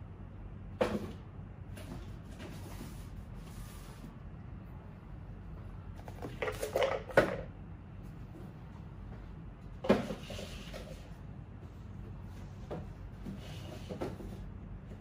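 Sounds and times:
objects handled on shelves: 0.8 - 4.3, 5.6 - 15.0.

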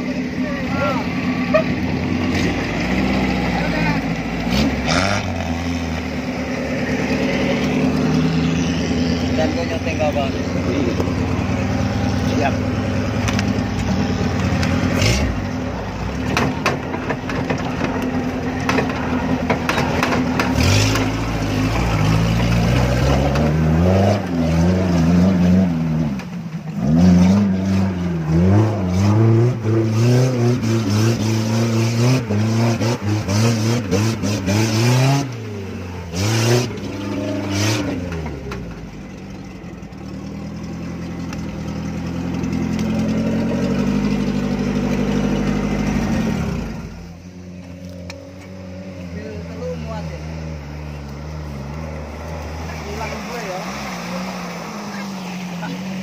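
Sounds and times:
jeep engine revving: 0.0 - 56.0.

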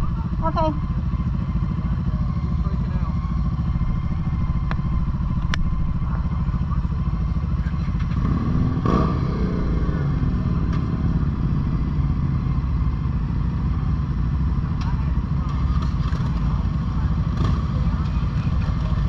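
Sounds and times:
motorcycle engine idling: 0.0 - 19.0
second motorcycle engine revving: 3.2 - 19.0.

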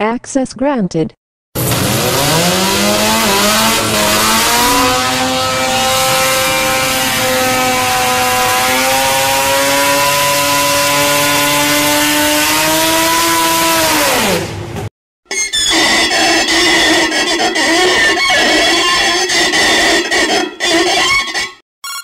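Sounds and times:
car screeching: 1.6 - 14.5, 15.3 - 21.6
tyre and engine noise: 1.6 - 14.9.

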